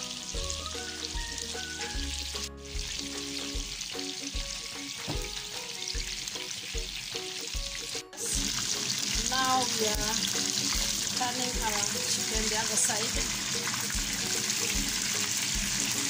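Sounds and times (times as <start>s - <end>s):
chicken deep-frying in hot oil: 0.0s - 16.0s.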